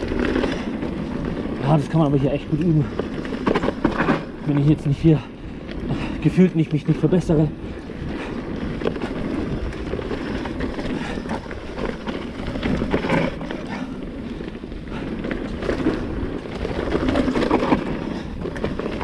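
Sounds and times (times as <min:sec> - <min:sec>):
bike knocks and rattles: 0:00.0 - 0:05.2, 0:08.2 - 0:19.0
bike tyres on loose ground: 0:00.0 - 0:19.0
wind buffeting microphone: 0:00.0 - 0:19.0.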